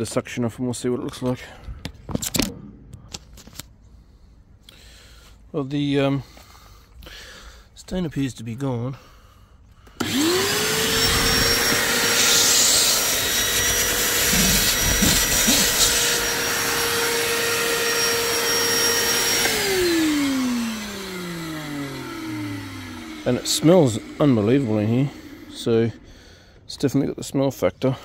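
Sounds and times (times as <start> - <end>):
vacuum cleaner running: 10.0 - 26.4.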